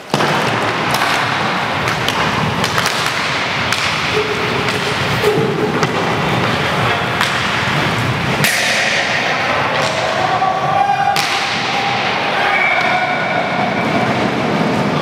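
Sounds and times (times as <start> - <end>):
hockey sticks knocking puck: 0.0 - 10.2, 11.1 - 12.0
skate wheels rumbling on boards: 0.0 - 15.0.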